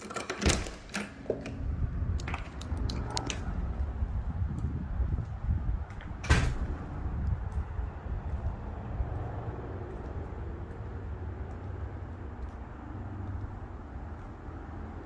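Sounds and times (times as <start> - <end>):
low rumbling on microphone: 1.6 - 15.0.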